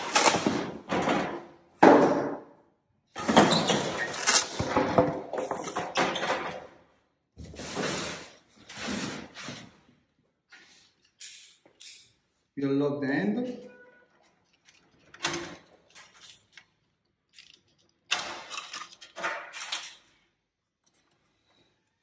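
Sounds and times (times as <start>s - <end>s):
tile cutter carriage sliding: 3.2s - 6.6s, 7.4s - 9.7s, 18.1s - 20.2s
metal parts clunking: 11.0s - 12.2s, 14.2s - 21.2s.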